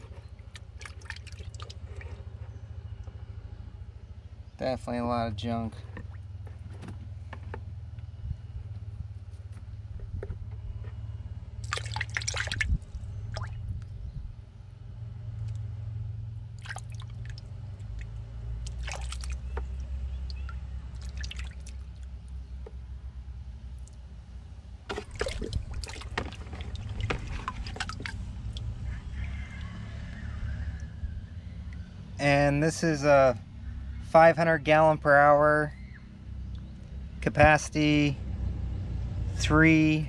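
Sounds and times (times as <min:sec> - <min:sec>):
water sloshing in a bucket: 0:00.0 - 0:02.4, 0:05.7 - 0:07.3, 0:11.6 - 0:13.9, 0:16.5 - 0:22.4, 0:24.8 - 0:29.7
steady low hum: 0:00.0 - 0:40.0.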